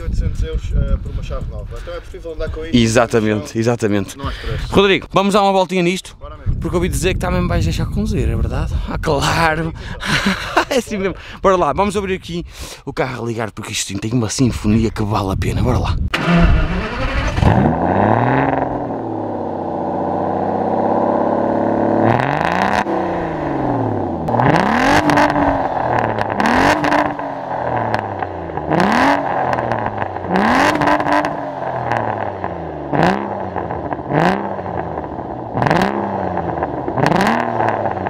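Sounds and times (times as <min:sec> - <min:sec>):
exhaust crackles: 0:16.0 - 0:38.0
car engine revving: 0:16.1 - 0:38.0.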